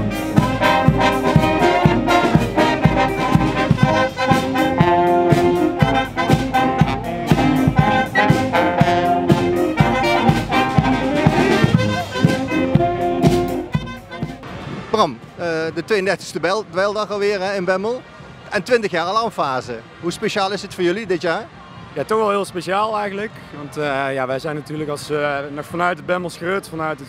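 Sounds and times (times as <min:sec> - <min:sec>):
steady drum beat: 0:00.0 - 0:14.5
brass band playing: 0:00.0 - 0:15.0.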